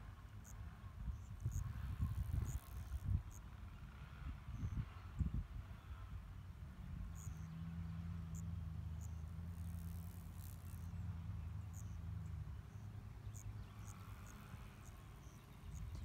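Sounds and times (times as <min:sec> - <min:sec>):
insects chirping: 0:00.4 - 0:03.4, 0:07.1 - 0:07.6, 0:08.2 - 0:16.0.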